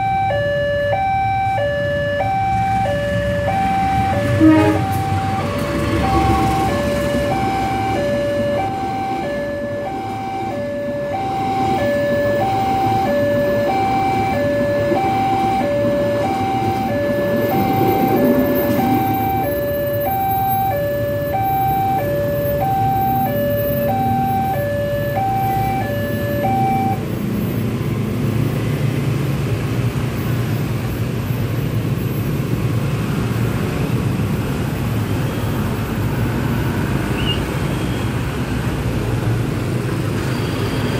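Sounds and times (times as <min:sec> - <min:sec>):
level crossing alarm tones: 0:00.0 - 0:27.1
road traffic: 0:00.0 - 0:40.9.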